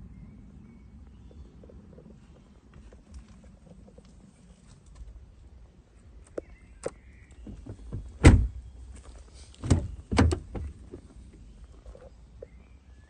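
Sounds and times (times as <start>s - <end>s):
car door shutting with thud: 7.4s - 8.6s, 9.6s - 10.9s
car door unlatching and opening: 7.4s - 8.6s, 9.6s - 11.1s.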